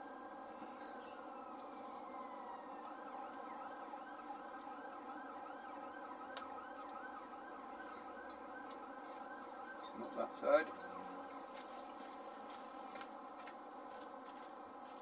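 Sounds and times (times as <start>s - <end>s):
warbling siren-like tone: 0.0s - 11.8s
steady multi-tone hum: 0.0s - 15.0s.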